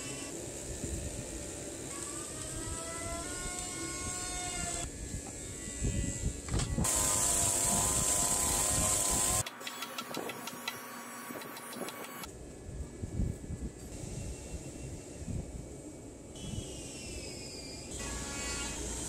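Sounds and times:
chainsaw cutting wood: 0.0 - 4.9, 6.6 - 12.3
hammer striking chisel: 9.4 - 12.3.

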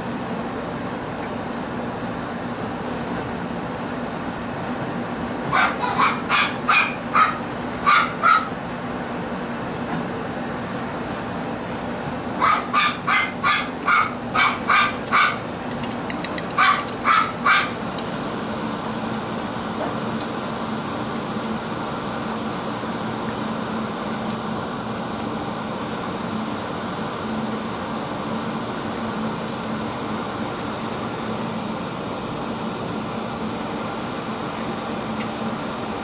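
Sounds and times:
puppy yapping: 5.5 - 8.6, 12.4 - 15.4, 16.6 - 17.8.

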